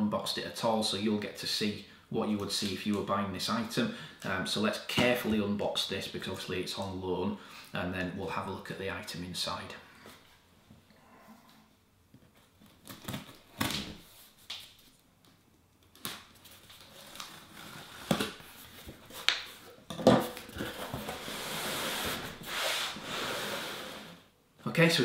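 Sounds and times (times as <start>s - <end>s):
cardboard sliding against cardboard: 20.6s - 24.3s.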